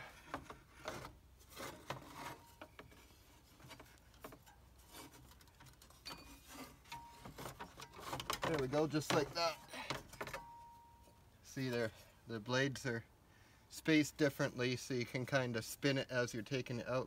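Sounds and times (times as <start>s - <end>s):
fan blades scraping and knocking: 0.0s - 10.6s.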